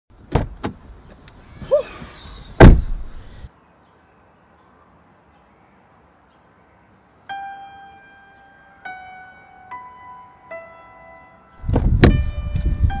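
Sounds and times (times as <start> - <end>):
car door slamming: 0.2 - 0.8, 2.6 - 3.2, 11.7 - 12.3.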